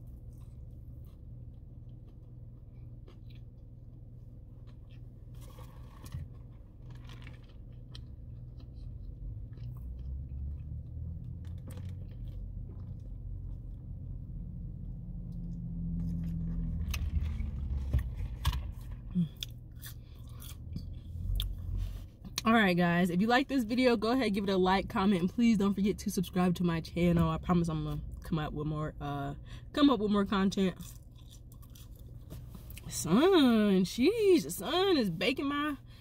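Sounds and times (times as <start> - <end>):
chewing with soft crunches: 0.0 - 22.4, 30.7 - 32.9
steady low hum: 0.0 - 36.0.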